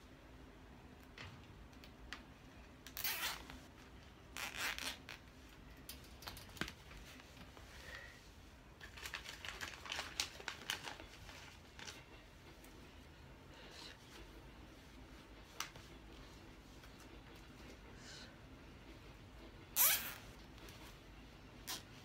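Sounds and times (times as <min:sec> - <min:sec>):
cable ties rasping zips: 0:02.8 - 0:03.6, 0:04.4 - 0:05.2, 0:19.8 - 0:20.2.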